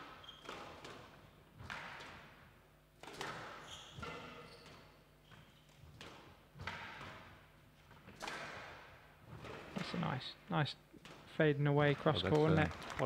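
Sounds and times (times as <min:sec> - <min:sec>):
squash ball hits: 0:06.0 - 0:07.3, 0:08.1 - 0:09.8.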